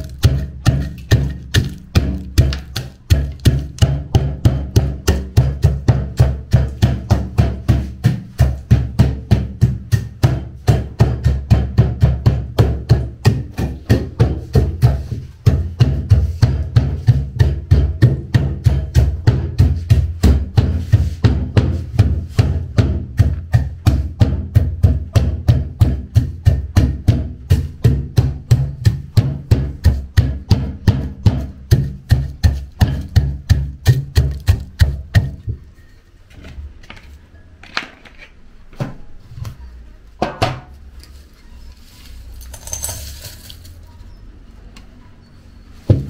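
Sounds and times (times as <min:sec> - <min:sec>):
pestle pounding in wooden mortar: 0:00.0 - 0:35.9
crushed beans rattling into bowl: 0:41.8 - 0:43.9.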